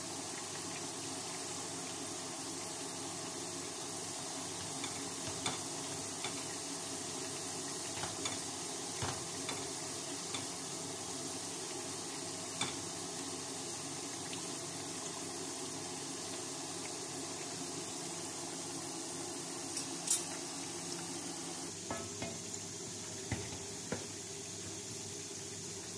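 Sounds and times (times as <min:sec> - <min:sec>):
potatoes sizzling in hot oil: 0:00.0 - 0:25.9
metal tongs clicking on pan: 0:12.6 - 0:12.8, 0:19.7 - 0:20.3.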